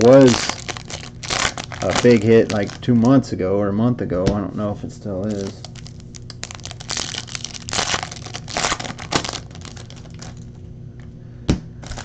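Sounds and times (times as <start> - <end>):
foil wrappers crinkling: 0.0 - 3.3, 5.2 - 10.6.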